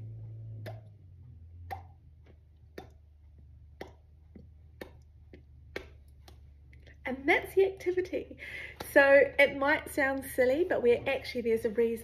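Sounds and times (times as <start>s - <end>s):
mouth pops from lips: 0.3s - 1.0s, 1.6s - 7.0s.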